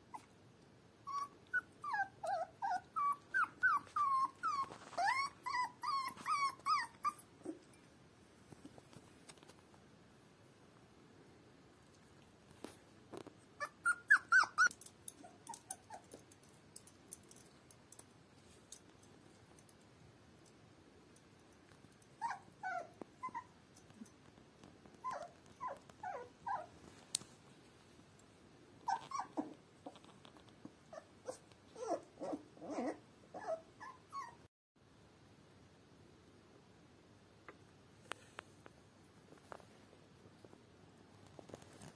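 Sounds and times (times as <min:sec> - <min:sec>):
puppy whimpering: 0:00.1 - 0:00.3, 0:01.0 - 0:07.8, 0:13.6 - 0:16.2, 0:22.2 - 0:23.5, 0:25.0 - 0:26.8, 0:28.8 - 0:30.0, 0:30.9 - 0:34.5.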